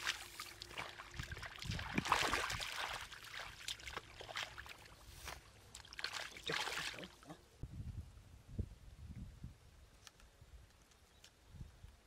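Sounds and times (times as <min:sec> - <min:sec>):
water splashing and sloshing: 0:00.0 - 0:07.4.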